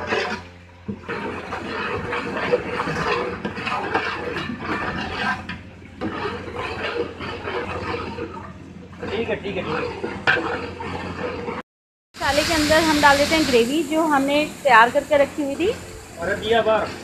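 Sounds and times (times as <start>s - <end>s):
ladle stirring in pot: 0.0s - 11.6s
spices sizzling in hot oil: 12.2s - 17.0s.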